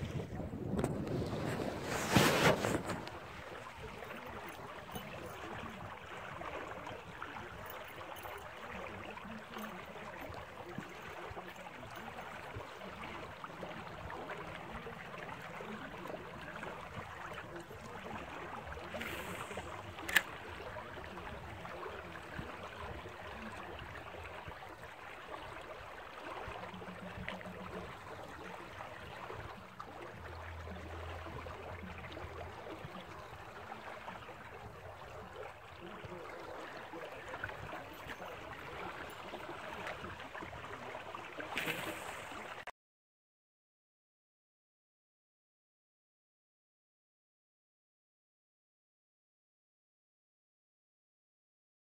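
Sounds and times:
water rushing from pipes: 0:11.1 - 0:42.6.

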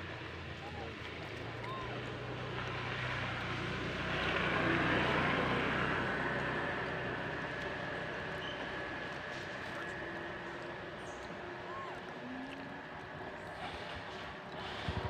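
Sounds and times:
vehicle passing by: 0:02.4 - 0:10.6.

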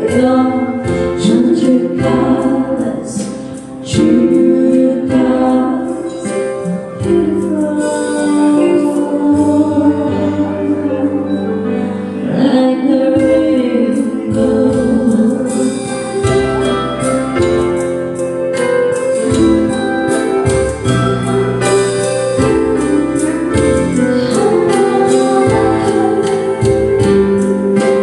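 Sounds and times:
two women singing a duet: 0:00.0 - 0:16.7, 0:22.4 - 0:28.0
instrumental accompaniment: 0:00.0 - 0:28.0.

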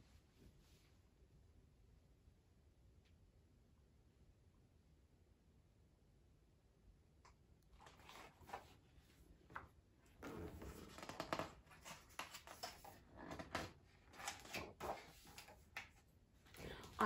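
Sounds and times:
book pages turning: 0:07.8 - 0:08.9, 0:09.5 - 0:17.0.

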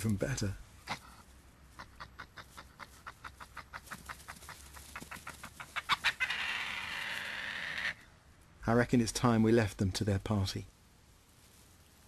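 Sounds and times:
badgers clicking clucks: 0:01.8 - 0:08.0.

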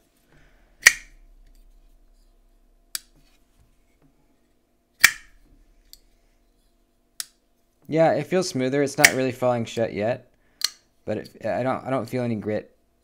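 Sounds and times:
knife blade metallic clicks: 0:05.0 - 0:05.3.

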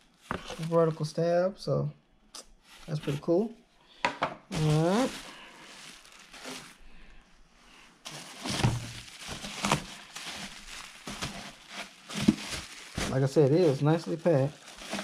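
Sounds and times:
bubble wrap crinkling and rustling: 0:00.0 - 0:01.3, 0:02.6 - 0:03.5, 0:04.5 - 0:07.1, 0:08.0 - 0:15.0.

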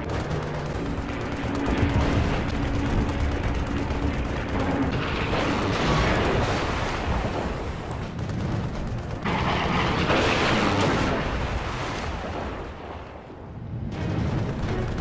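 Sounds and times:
aircraft engine drone: 0:00.0 - 0:06.6
gunfire: 0:00.0 - 0:07.1, 0:08.0 - 0:11.2, 0:14.0 - 0:15.0.

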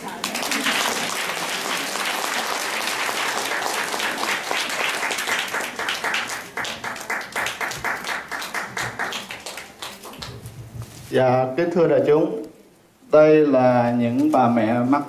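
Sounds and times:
audience applauding: 0:00.0 - 0:10.4.

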